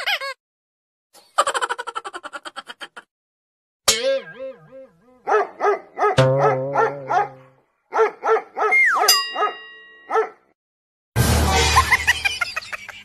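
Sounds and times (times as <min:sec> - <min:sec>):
sharp hit with held tone: 0:03.9 - 0:04.9
dog barking: 0:05.2 - 0:10.5.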